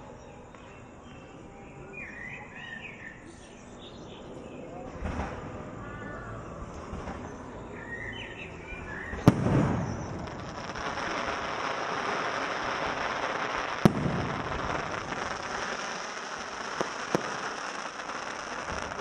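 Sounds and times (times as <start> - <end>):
dense fireworks crackling: 4.8 - 19.0
fireworks bangs: 4.9 - 5.8, 6.5 - 19.0.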